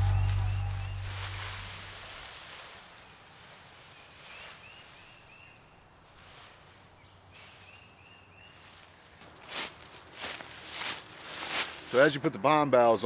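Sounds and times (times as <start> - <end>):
bird chirping: 0.0 - 1.9
dry leaves rustling: 0.0 - 12.2.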